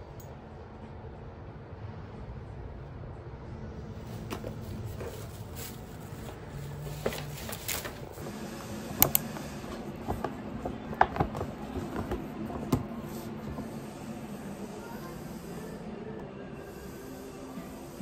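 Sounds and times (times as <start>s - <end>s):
low steady hum: 0.0s - 18.0s
paper bag rustling: 4.0s - 8.6s.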